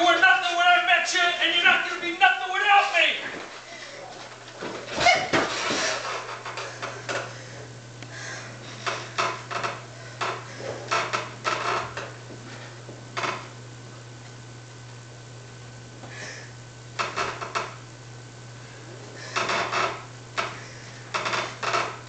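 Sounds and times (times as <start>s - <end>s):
steady low hum: 0.0s - 22.0s
bedding rustling and knocking: 3.3s - 7.4s.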